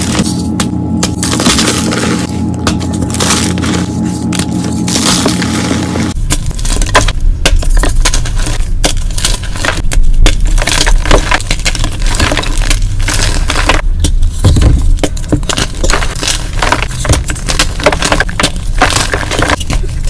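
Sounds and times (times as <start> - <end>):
chalk crunching and crackling: 0.0 - 20.0.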